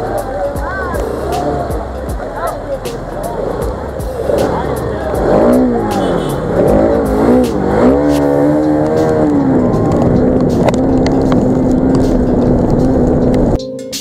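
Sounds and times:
motorcycle engine revving: 0.0s - 13.6s.

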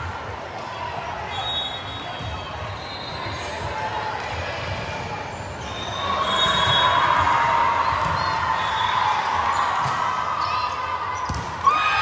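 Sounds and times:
sneakers squeaking on court: 10.6s - 11.5s.

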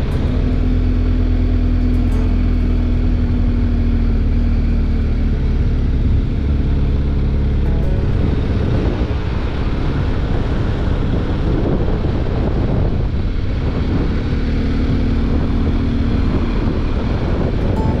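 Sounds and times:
motorcycle engine running: 0.0s - 18.0s
wind rushing on microphone: 8.3s - 18.0s.

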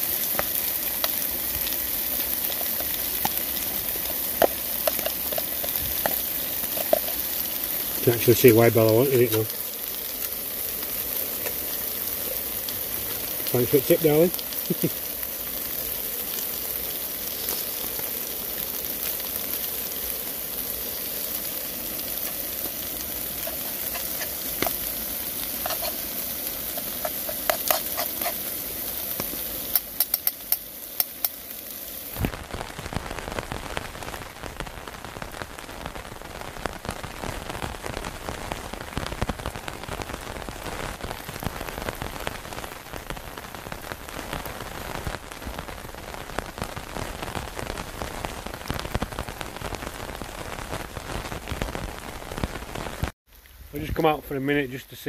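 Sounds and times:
food sizzling in a frying pan: 0.0s - 53.9s
rain on a nylon tarp: 0.0s - 55.0s
fork scraping in a pan: 4.0s - 7.2s, 23.3s - 24.8s, 25.4s - 28.6s.

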